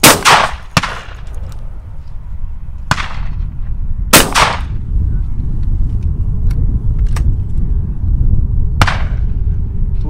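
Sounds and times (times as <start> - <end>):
shotgun shots: 0.0 - 1.2, 2.9 - 3.4, 4.1 - 4.7, 8.8 - 9.2.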